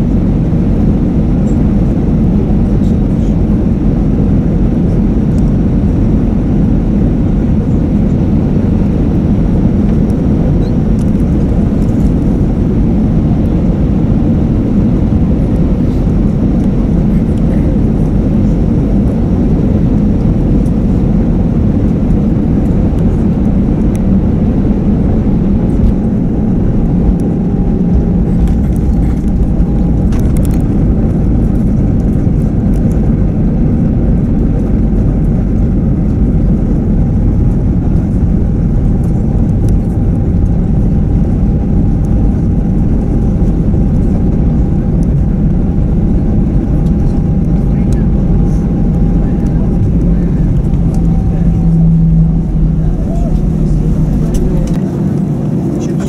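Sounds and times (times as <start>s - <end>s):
airliner cabin rumble: 0.0s - 56.0s
faint steady whine: 0.0s - 56.0s.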